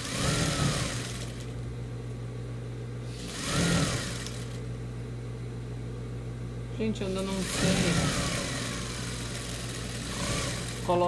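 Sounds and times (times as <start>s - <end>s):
sewing machine stitching: 0.0s - 1.5s, 3.1s - 4.6s, 7.3s - 11.0s
steady hum: 0.0s - 11.0s.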